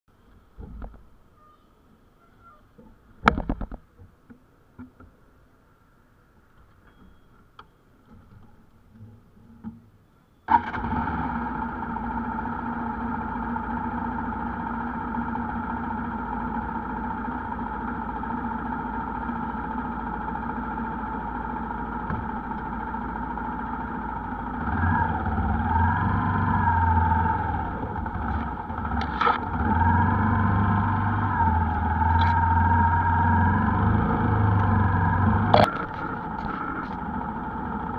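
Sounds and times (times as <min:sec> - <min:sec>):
motorcycle engine: 0:10.5 - 0:37.9.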